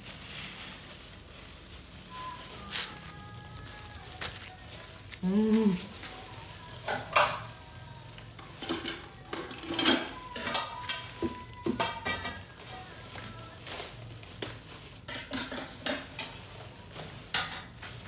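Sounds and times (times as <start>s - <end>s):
plastic bag crinkling: 0.0s - 18.0s
person humming: 2.1s - 13.8s.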